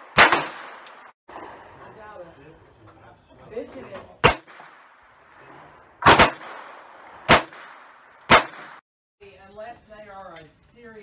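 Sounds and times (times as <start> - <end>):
pistol shots: 0.0 - 1.6, 4.2 - 8.8.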